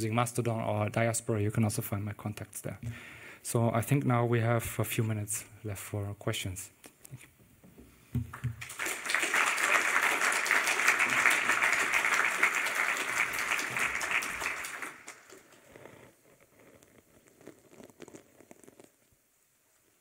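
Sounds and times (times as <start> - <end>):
audience applauding: 8.3 - 15.7.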